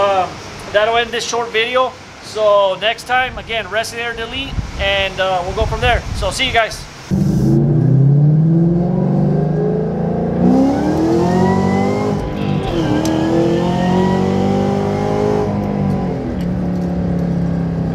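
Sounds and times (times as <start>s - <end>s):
car engine accelerating: 7.1s - 17.9s.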